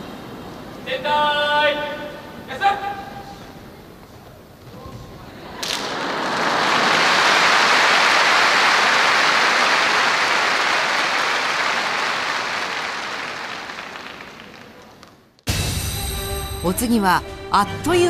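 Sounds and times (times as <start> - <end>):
crowd applause: 5.5 - 15.3.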